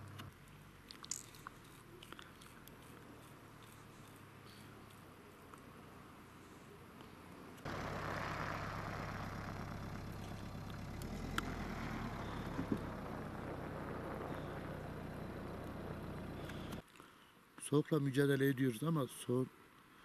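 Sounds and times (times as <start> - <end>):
engine humming: 0.0 - 0.3, 7.6 - 16.8
faint hiss: 0.0 - 20.0.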